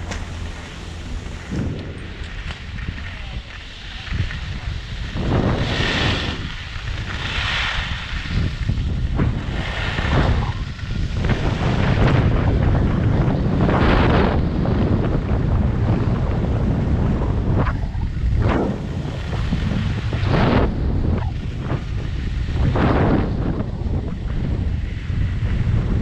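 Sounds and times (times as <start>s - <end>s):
skis scraping on snow: 0.0s - 14.6s, 18.2s - 23.2s
wind buffeting microphone: 0.0s - 26.0s.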